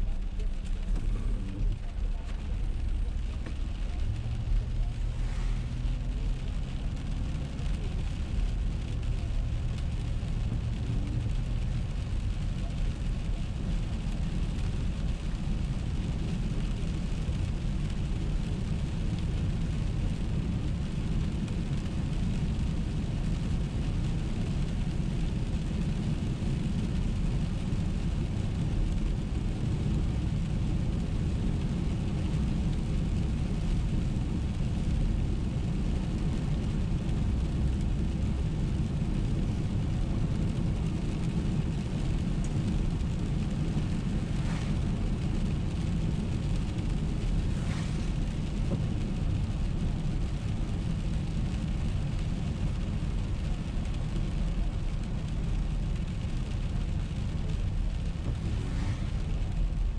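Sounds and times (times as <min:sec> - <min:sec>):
tyre and engine rumble: 0:00.0 - 0:59.9
wet road hiss: 0:04.2 - 0:06.4, 0:40.6 - 0:53.8, 0:57.8 - 0:59.9.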